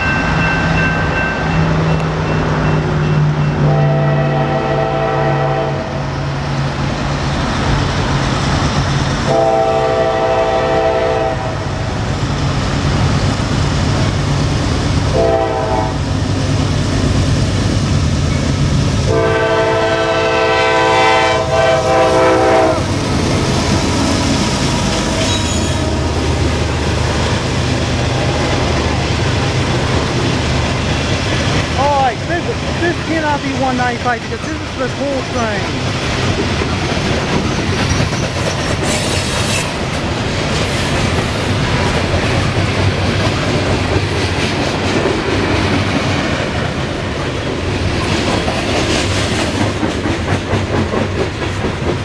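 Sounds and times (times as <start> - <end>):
locomotive engines rumbling: 0.0 - 49.2
locomotive air horn blasts: 3.6 - 6.0, 9.3 - 11.7, 15.1 - 16.0, 19.1 - 22.9
freight cars clattering on rails: 22.9 - 52.0.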